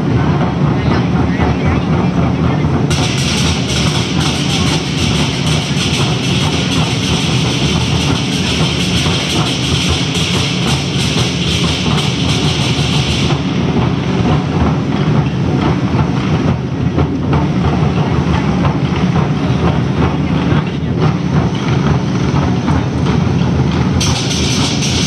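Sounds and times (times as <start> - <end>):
big drum beaten rapidly: 0.0 - 25.0
gong: 2.9 - 16.6
clashing cymbals: 2.9 - 16.8, 21.0 - 25.0.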